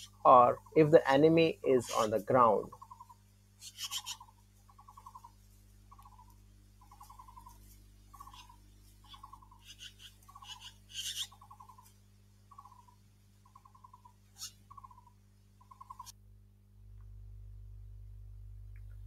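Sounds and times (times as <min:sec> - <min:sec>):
harsh rasping bird notes: 0:00.0 - 0:11.9
magpie alarm calls: 0:01.8 - 0:11.9, 0:12.5 - 0:16.1.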